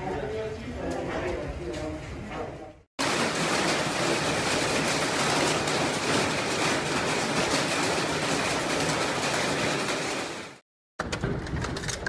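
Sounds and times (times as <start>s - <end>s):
hail and rain falling hard: 3.0s - 10.6s.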